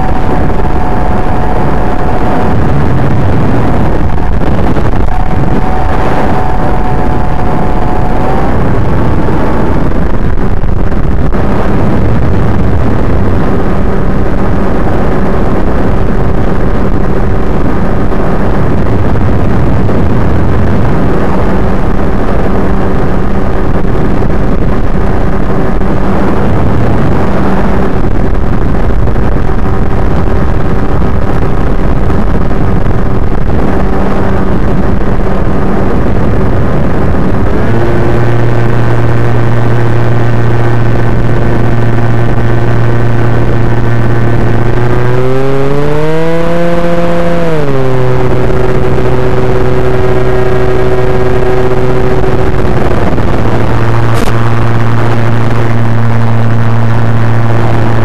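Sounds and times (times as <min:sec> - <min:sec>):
model plane motor whine: 0:00.0 - 0:09.8, 0:37.4 - 0:58.0.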